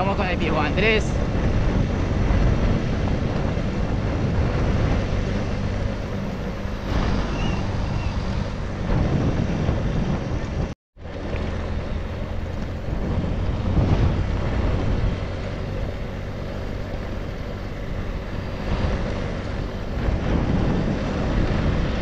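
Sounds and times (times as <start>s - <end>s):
vehicle engine running: 0.0s - 22.0s
wind buffeting microphone: 0.0s - 22.0s.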